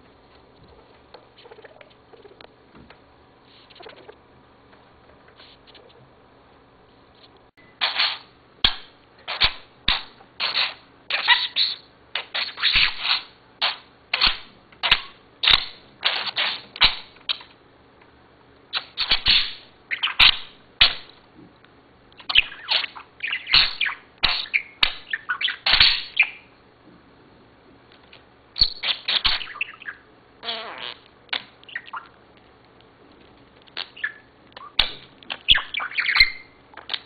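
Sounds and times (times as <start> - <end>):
budgerigar chirping and chattering: 7.8 - 17.5, 18.7 - 21.1, 22.2 - 26.5, 28.6 - 32.2, 33.8 - 37.0.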